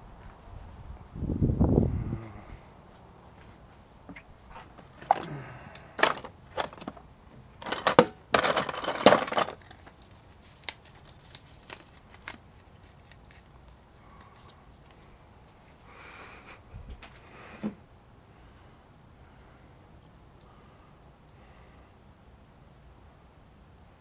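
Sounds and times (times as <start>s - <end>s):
rummaging among tools and packaging: 4.1s - 15.0s.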